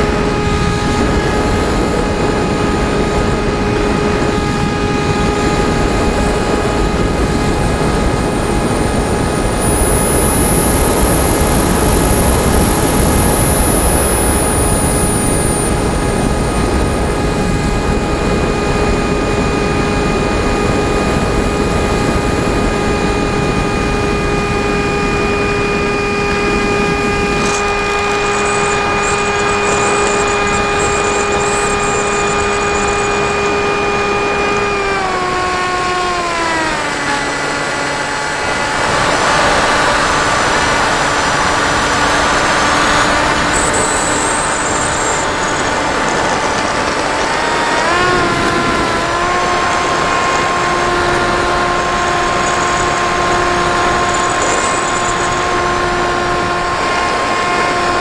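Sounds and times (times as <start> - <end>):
wind rushing over airframe: 0.0 - 35.6
model plane motor whining: 0.0 - 58.0.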